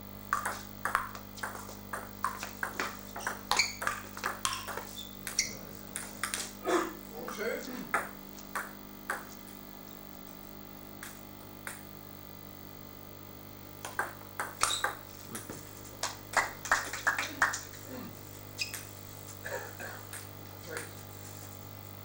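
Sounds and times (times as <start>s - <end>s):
table tennis ball hits: 0.3s - 6.5s, 7.9s - 9.3s, 13.8s - 15.6s.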